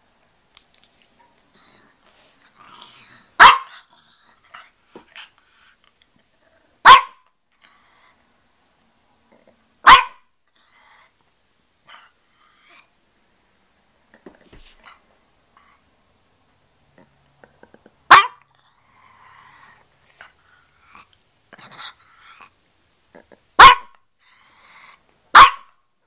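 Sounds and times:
dog barking: 3.4 - 3.8, 6.8 - 7.3, 9.8 - 10.3, 18.1 - 18.4, 23.6 - 24.0, 25.3 - 25.8.

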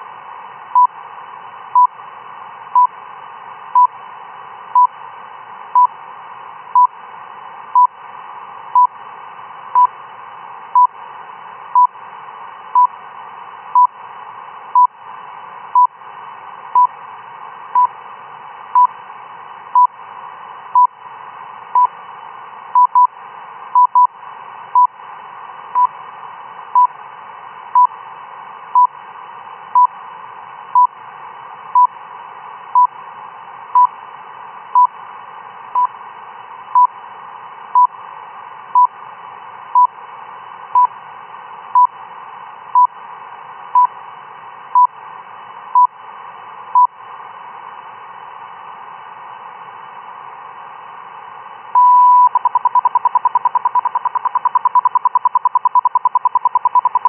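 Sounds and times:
radio band hiss: 0.0 - 57.0
short time-signal beeps: 51.8 - 57.0.

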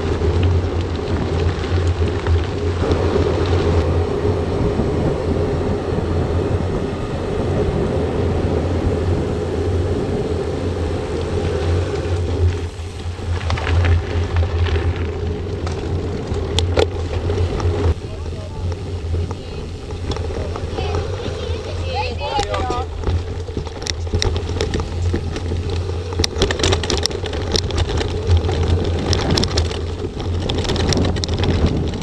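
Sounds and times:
bike tyres rolling on gravel: 0.0 - 32.0
wind buffeting microphone: 0.0 - 32.0
short rattles and ticks: 11.2 - 32.0.

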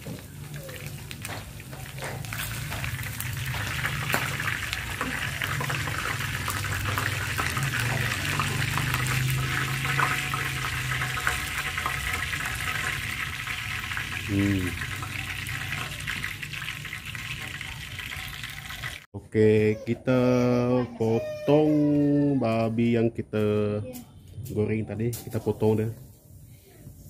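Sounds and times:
meat sizzling in hot oil: 0.0 - 19.1.

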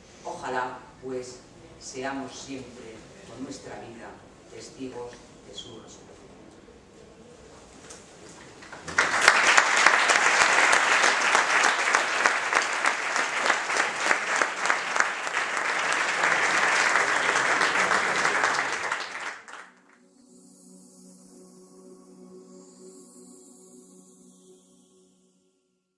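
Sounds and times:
quiet ambient music: 0.0 - 25.9
audience applauding: 8.6 - 20.0.

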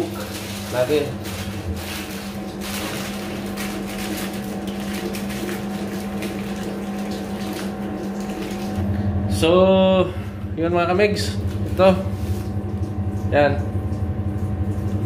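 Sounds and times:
aluminium foil crinkling: 0.0 - 8.8
steady low hum: 0.0 - 15.0.

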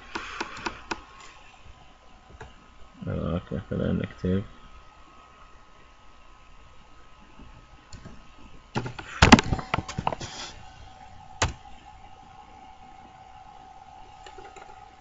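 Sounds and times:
keyboard typing clicks: 0.1 - 1.0, 14.2 - 14.8.

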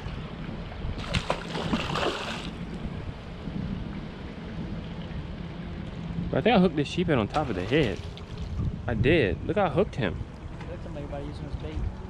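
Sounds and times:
water lapping against dock: 0.0 - 6.2, 7.2 - 8.8
wind buffeting microphone: 0.0 - 12.0.

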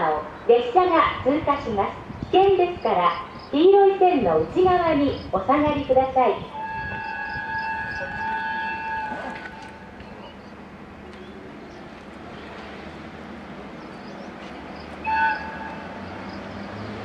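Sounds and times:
train rumbling: 0.0 - 17.0
train horn blast: 6.5 - 10.0, 15.0 - 16.2.

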